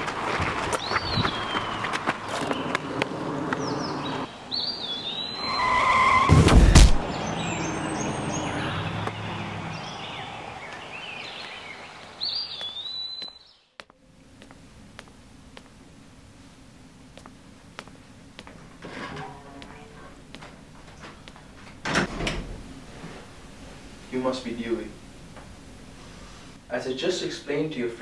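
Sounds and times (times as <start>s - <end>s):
birds chirping: 0.0s - 6.2s, 7.0s - 16.3s
tyre squeal: 5.3s - 6.5s
loud crash: 6.2s - 7.2s.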